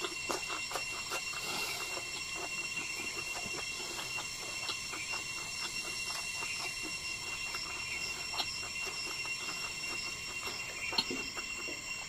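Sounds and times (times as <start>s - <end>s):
man chewing food: 0.0s - 12.0s
steady high-pitched whine: 0.0s - 12.0s
wet mouth clicks: 0.0s - 12.0s.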